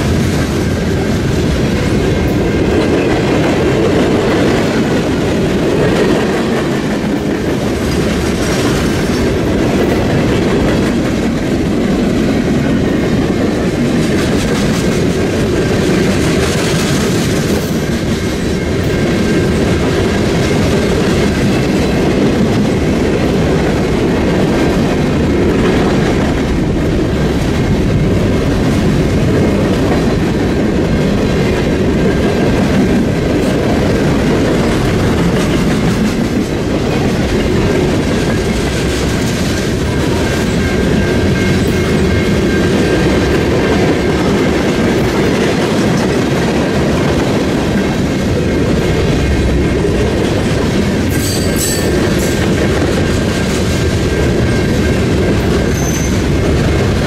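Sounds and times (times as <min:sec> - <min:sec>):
clickety-clack over rail joints: 0:00.0 - 0:57.0
train wheels rumbling on rail: 0:00.0 - 0:57.0.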